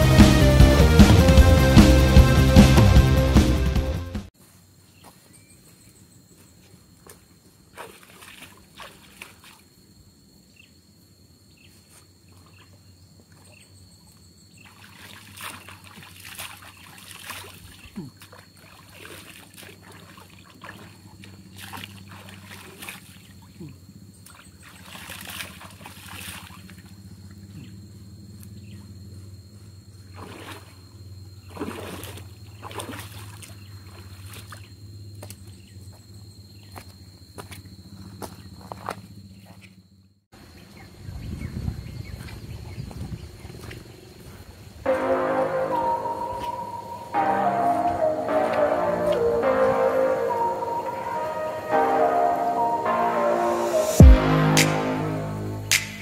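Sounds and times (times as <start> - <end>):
thin high tone: 44.9 - 56.0.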